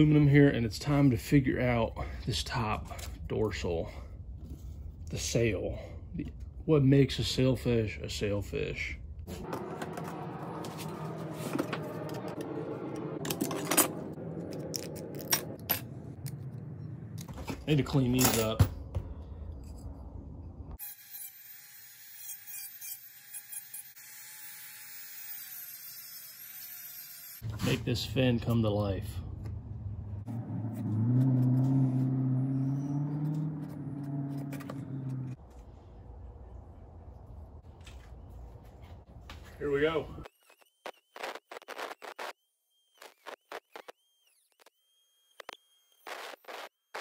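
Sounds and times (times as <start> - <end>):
low motor hum: 9.4 - 17.7, 29.2 - 39.0.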